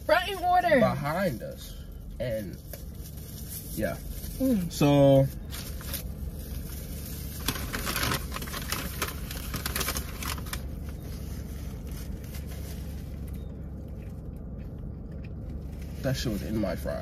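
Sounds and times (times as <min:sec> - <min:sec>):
low hum: 0:00.0 - 0:17.0
paper wrappers rustling: 0:02.8 - 0:14.3.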